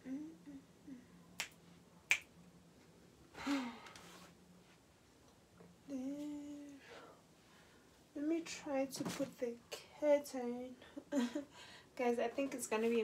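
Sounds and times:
finger snaps: 0:01.4 - 0:02.3.

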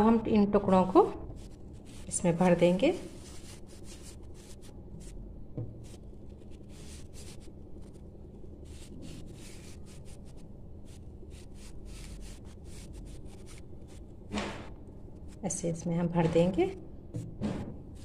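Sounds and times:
low steady hum: 0:00.0 - 0:18.0
fabric rustling and rubbing: 0:01.3 - 0:15.5.

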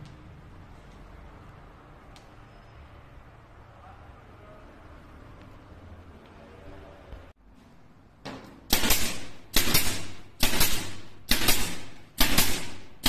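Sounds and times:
pneumatic nailer shots: 0:08.7 - 0:13.0.

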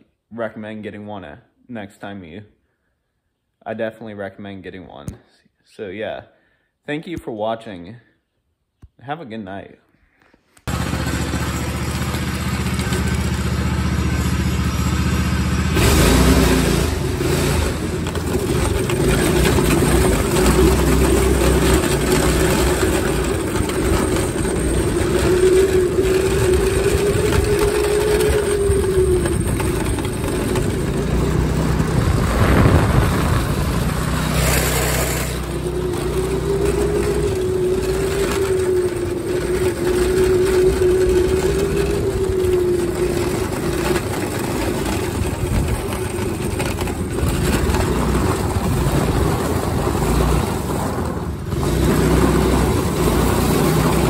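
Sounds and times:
go-kart engine at high revs: 0:10.7 - 0:54.0
steady rushing noise: 0:24.2 - 0:51.8.

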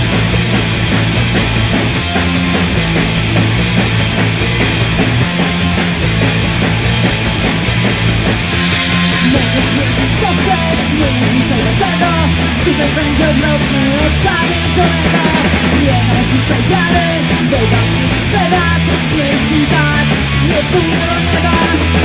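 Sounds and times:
bass guitar: 0:00.0 - 0:22.0
drums: 0:00.0 - 0:22.0
electric guitar: 0:00.0 - 0:22.0
person singing: 0:09.0 - 0:22.0.

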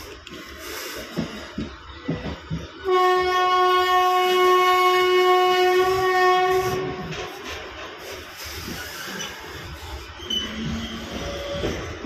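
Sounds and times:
moving train running noise: 0:00.0 - 0:12.0
train horn blast: 0:02.8 - 0:07.4.

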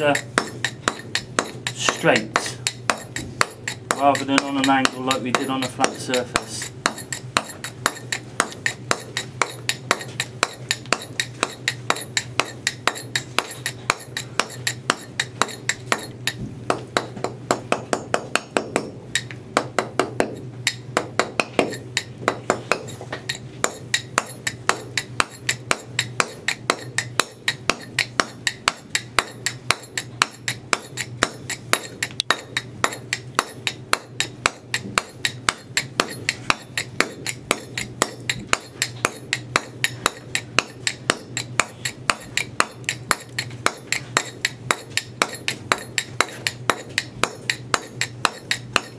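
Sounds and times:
mallet striking steel chisel: 0:00.0 - 0:48.9.

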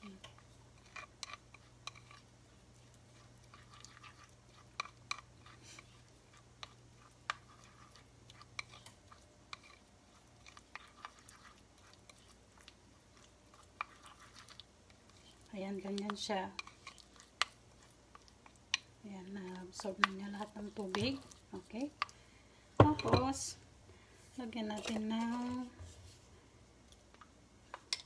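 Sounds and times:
spatula stirring thick paste: 0:00.0 - 0:22.2.

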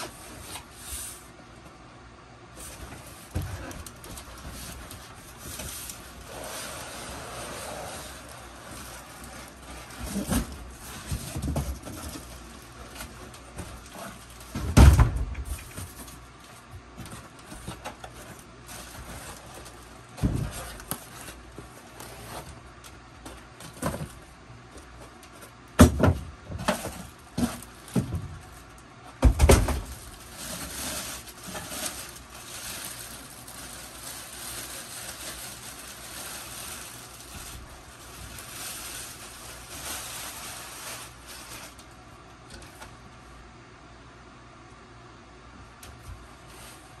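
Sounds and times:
plastic bag crinkling: 0:02.6 - 0:14.6, 0:29.7 - 0:42.0.

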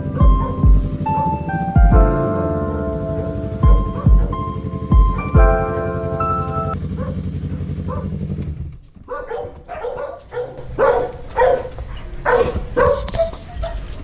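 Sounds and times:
dog barking: 0:00.0 - 0:00.7, 0:03.9 - 0:04.4, 0:07.0 - 0:08.2, 0:09.1 - 0:14.0
motorcycle engine idling: 0:00.0 - 0:11.9.

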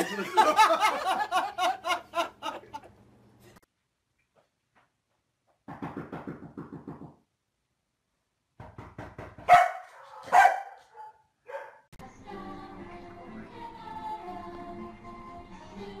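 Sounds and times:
dog barking: 0:09.4 - 0:11.9.

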